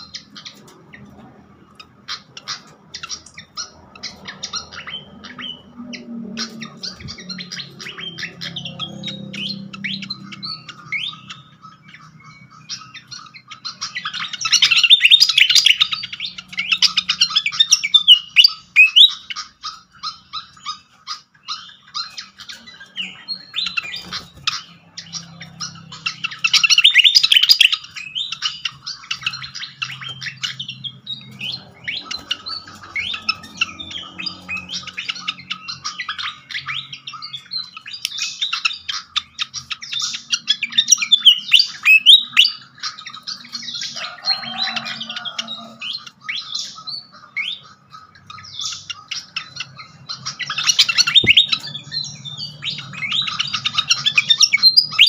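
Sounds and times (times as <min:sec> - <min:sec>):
bird squeaky chirps and whistles: 0:12.0 - 0:43.7, 0:48.4 - 0:55.0.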